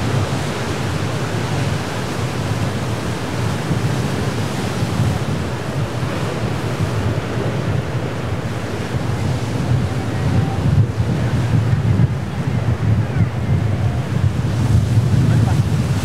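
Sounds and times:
surf breaking over rocks: 0.0s - 16.0s
wind buffeting microphone: 0.0s - 16.0s.

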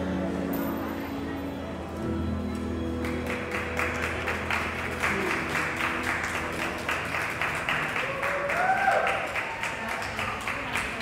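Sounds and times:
music: 0.0s - 11.0s
people applauding: 2.9s - 11.0s.

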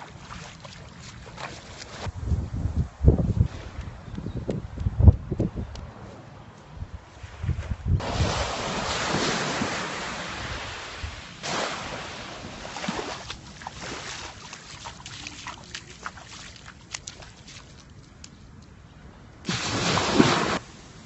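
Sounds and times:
wind buffeting microphone: 2.0s - 6.1s, 6.7s - 8.9s
waves washing onto beach: 8.0s - 17.9s, 19.5s - 21.0s.

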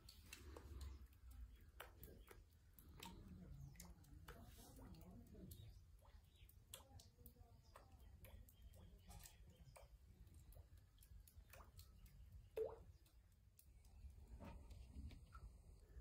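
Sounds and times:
soft clicks and ticks: 0.0s - 16.0s.

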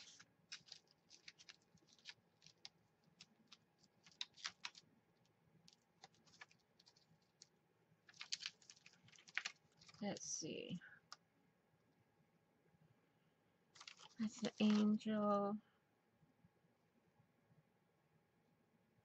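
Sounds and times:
plastic clicks and crackles: 0.0s - 7.5s, 8.1s - 10.3s, 13.8s - 14.9s.

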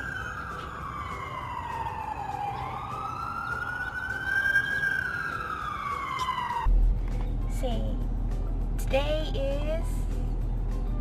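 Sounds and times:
emergency siren wailing: 0.0s - 6.8s.

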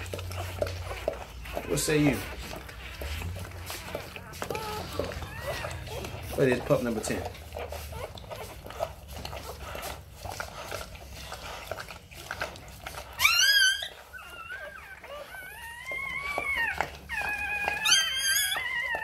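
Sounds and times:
faint rustling: 0.0s - 13.2s
puppy crying in high squeals: 3.6s - 6.6s, 13.1s - 19.0s.

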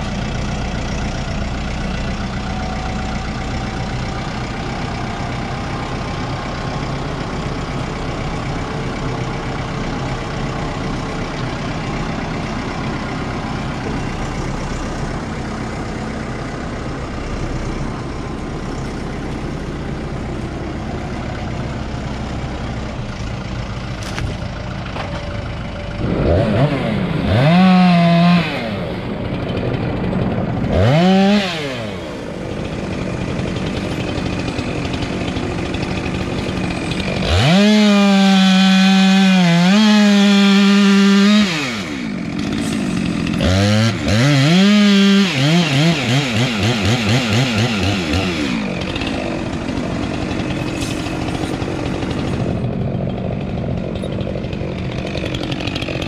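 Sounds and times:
tractor engine running: 0.0s - 56.0s
chainsaw revving: 26.0s - 56.0s.

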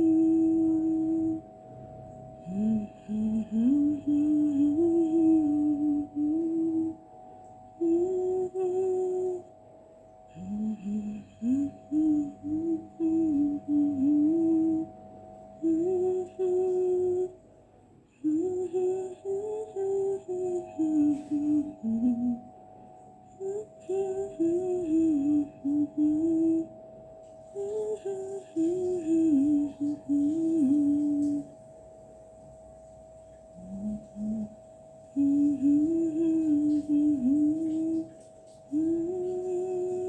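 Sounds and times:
woman humming: 0.0s - 1.6s, 2.4s - 9.5s, 10.2s - 17.4s, 18.1s - 22.6s, 23.3s - 26.8s, 27.5s - 31.6s, 33.5s - 40.0s.

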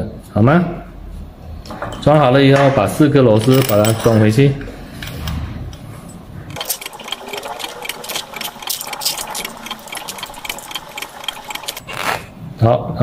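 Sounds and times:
screws turning metallic clicks: 6.5s - 12.1s.

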